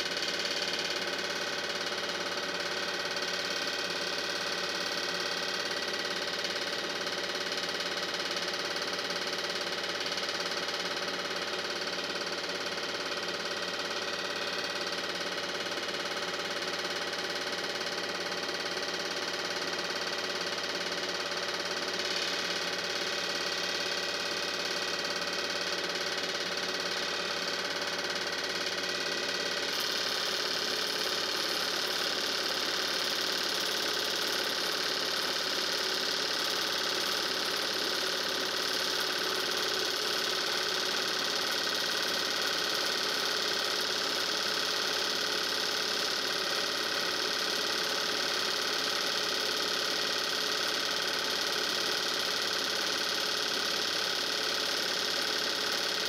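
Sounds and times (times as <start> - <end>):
machine motor humming: 13.8 - 16.3, 20.6 - 37.3.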